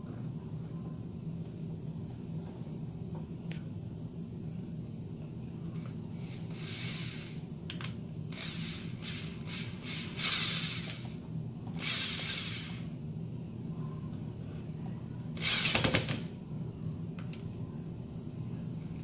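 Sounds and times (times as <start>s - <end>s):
cordless drill driving screws: 8.3s - 11.1s, 11.8s - 12.8s.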